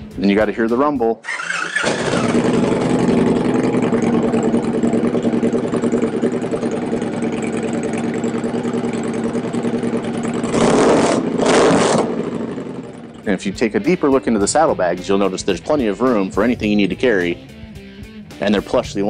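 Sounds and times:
motorcycle engine revving: 1.2s - 16.9s
motorcycle engine rumbling: 1.2s - 17.8s.

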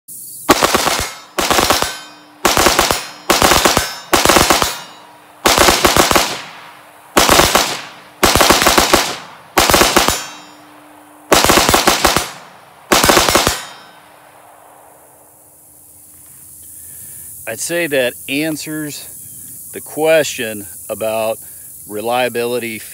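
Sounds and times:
rifle firing rapidly: 0.5s - 10.6s, 11.3s - 13.9s.

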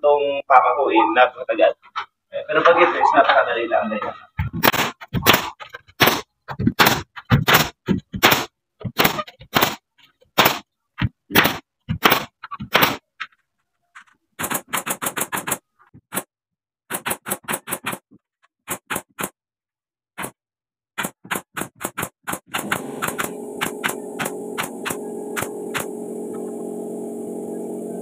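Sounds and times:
nail gun firing: 4.6s - 9.8s, 10.4s - 10.6s, 11.3s - 13.0s, 16.9s - 18.0s, 21.0s - 26.0s.

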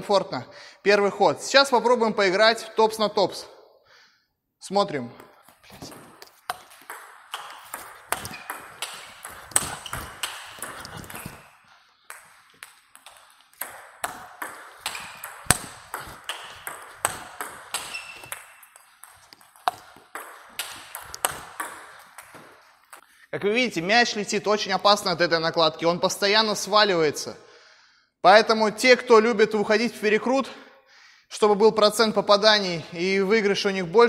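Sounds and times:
table tennis ball clicks: 5.8s - 11.5s, 12.1s - 23.0s.

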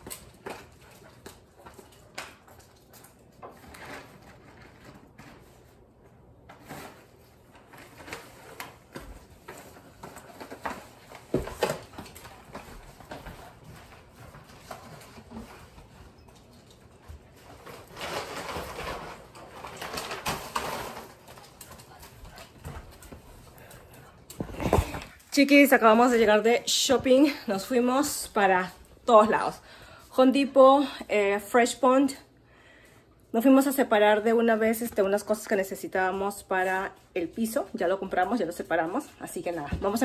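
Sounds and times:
footsteps: 21.2s - 29.5s.

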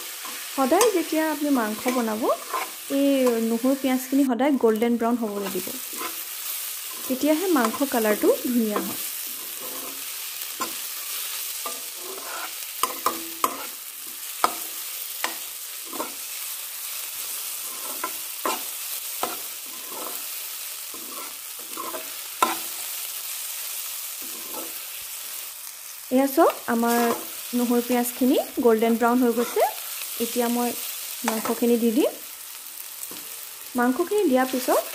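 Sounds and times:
metal spatula scraping a pan: 0.0s - 3.8s, 4.6s - 23.0s, 24.1s - 25.2s, 26.8s - 27.4s, 29.2s - 30.0s
onions sizzling in oil: 0.0s - 34.9s.

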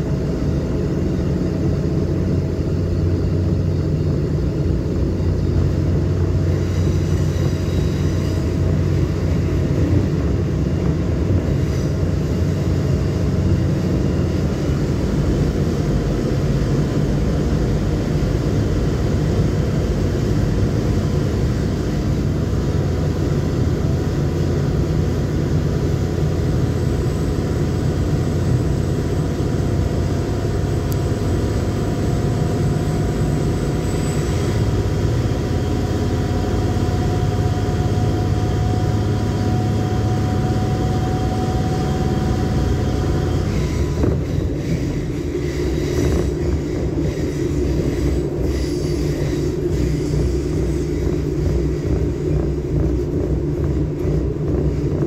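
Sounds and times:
faint whine: 0.0s - 55.0s
train wheels rumbling on rail: 0.0s - 55.0s.

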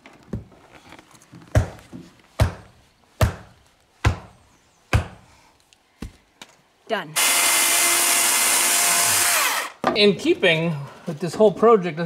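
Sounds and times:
hammer striking nail into wood: 4.9s - 5.2s.

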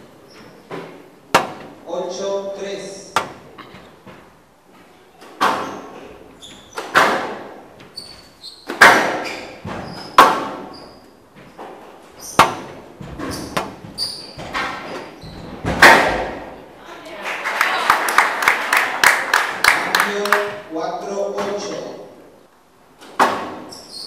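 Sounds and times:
shoes squeaking on court floor: 0.0s - 1.1s, 3.4s - 7.0s, 7.7s - 15.7s, 23.4s - 24.0s
squash ball cracks echoing: 1.3s - 1.8s, 6.8s - 7.6s, 8.7s - 9.3s, 10.2s - 10.7s, 12.3s - 12.8s, 15.7s - 16.6s.

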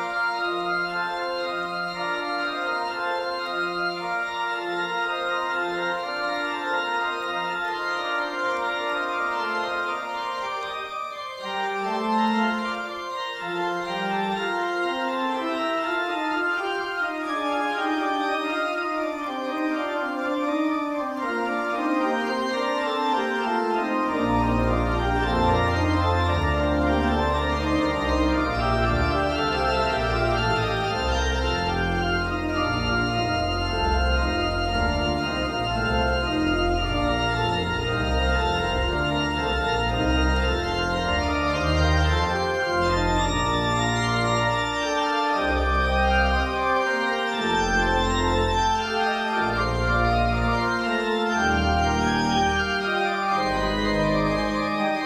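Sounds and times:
church organ chords: 0.0s - 55.0s
deep organ pedal bass notes: 0.0s - 55.0s.

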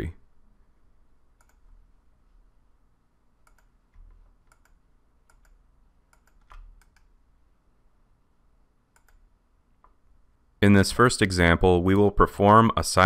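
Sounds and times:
computer mouse clicks: 1.4s - 1.6s, 3.4s - 7.1s, 8.9s - 10.0s.

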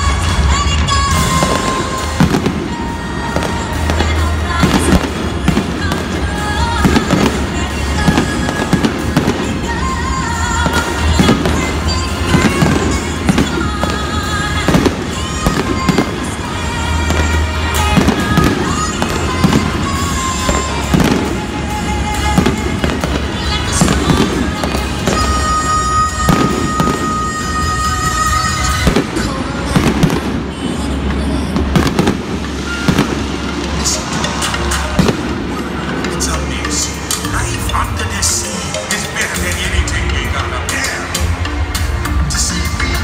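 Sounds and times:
fireworks bursting: 0.0s - 43.0s
theme park music: 0.0s - 43.0s.

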